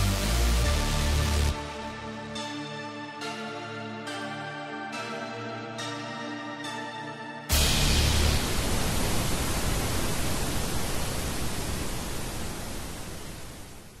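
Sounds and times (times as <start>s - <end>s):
tv static hiss: 7.5s - 14.0s.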